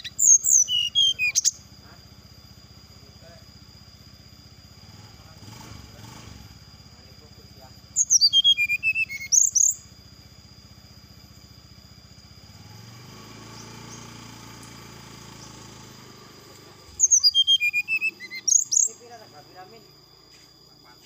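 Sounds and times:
bird whistled song: 0.0 - 1.7, 7.9 - 9.9, 13.4 - 19.2.

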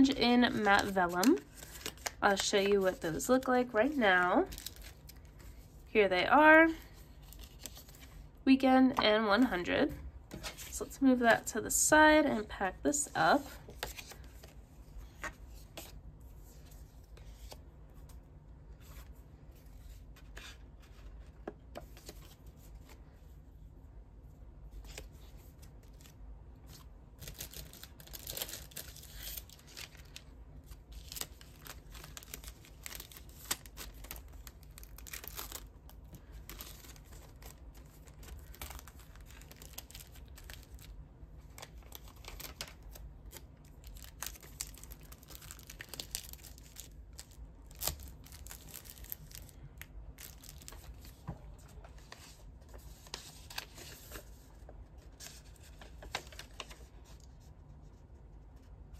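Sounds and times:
paper and plastic sleeve rustling: 0.0 - 5.8, 6.7 - 8.3, 24.7 - 57.5.

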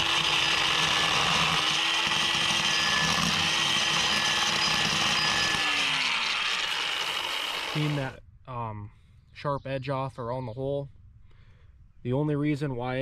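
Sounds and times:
electric drill motor whine: 0.0 - 8.2.

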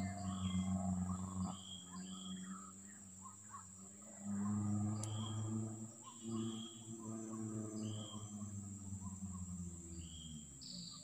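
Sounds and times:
bird chirps: 0.0 - 3.8, 4.4 - 11.0
insects trilling: 0.0 - 11.0
low hum: 0.0 - 11.0
faint click: 5.0 - 5.2.

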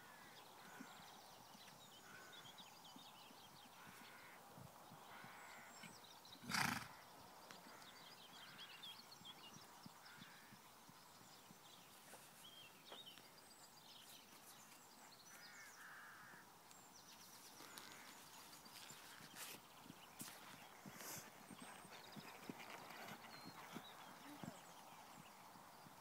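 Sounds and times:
small birds trilling and chirping: 0.0 - 26.0.

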